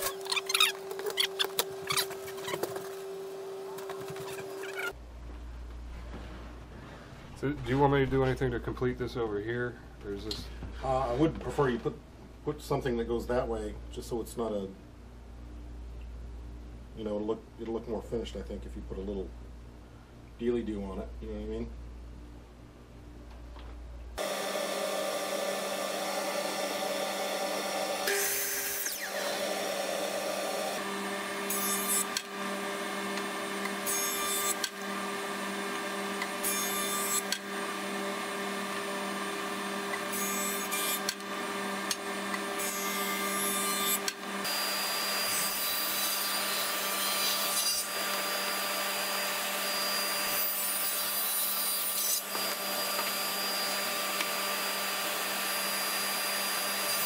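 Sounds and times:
miter saw crosscut: 24.2s - 35.4s
table saw cutting: 24.2s - 57.0s.

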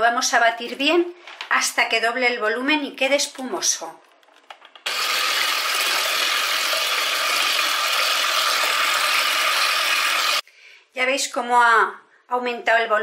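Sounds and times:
electric hand mixer whisking: 4.9s - 10.4s.

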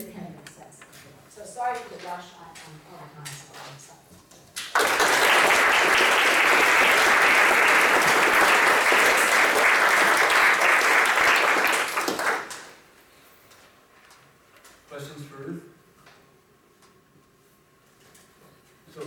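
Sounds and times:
audience applauding: 4.6s - 12.8s.

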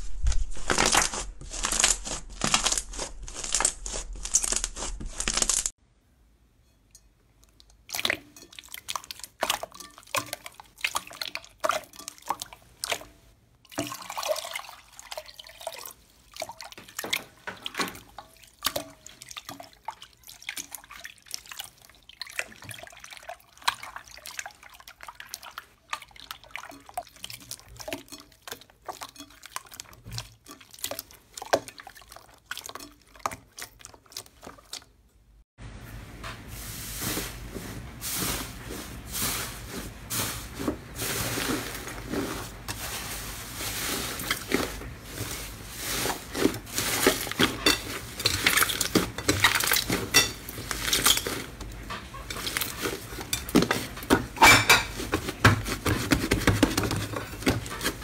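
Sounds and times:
slime crackling: 0.0s - 5.7s.

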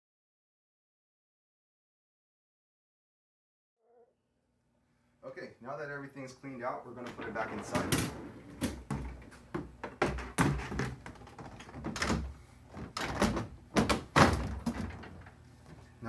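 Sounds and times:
plastic basket knocking and clattering: 7.6s - 15.3s.

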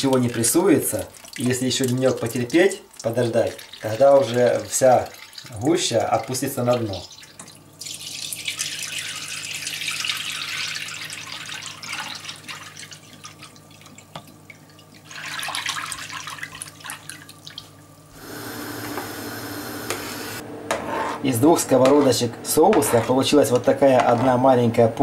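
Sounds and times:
thick liquid pouring through sieve: 15.1s - 17.3s.

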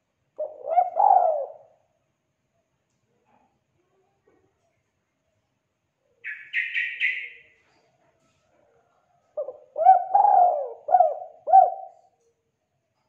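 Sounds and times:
dove cooing: 0.4s - 1.8s, 9.4s - 12.1s.

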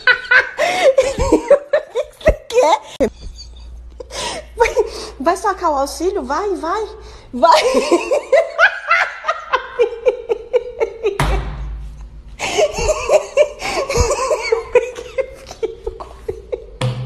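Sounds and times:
person laughing hard: 0.0s - 2.2s, 7.6s - 11.5s, 12.4s - 16.8s.

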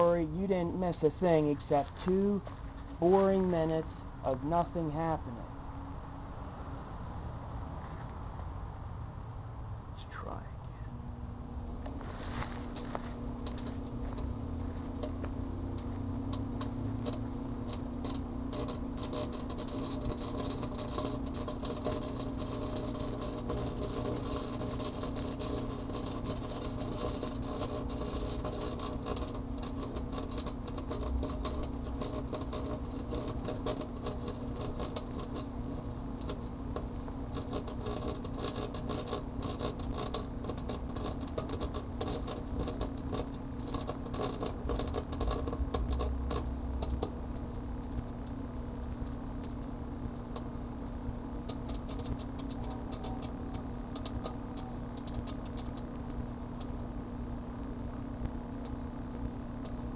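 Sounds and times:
foil arcing crackling: 0.0s - 7.6s, 11.3s - 59.9s
microwave oven humming: 0.0s - 59.9s.

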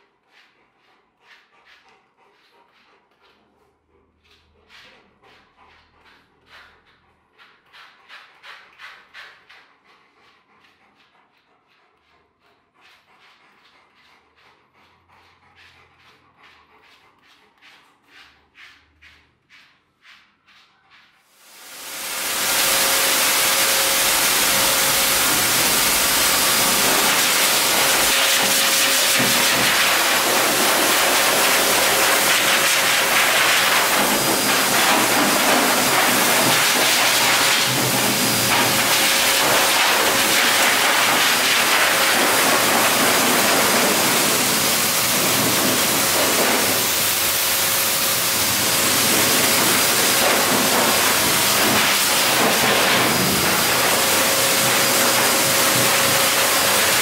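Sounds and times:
pet dryer blowing air: 21.4s - 57.0s.

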